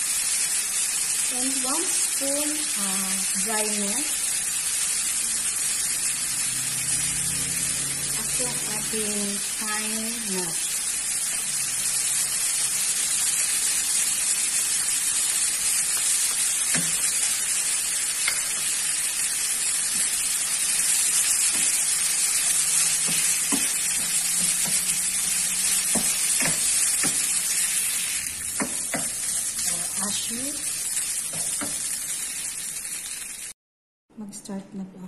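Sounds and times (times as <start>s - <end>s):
meat sizzling in a frying pan: 0.0s - 33.6s.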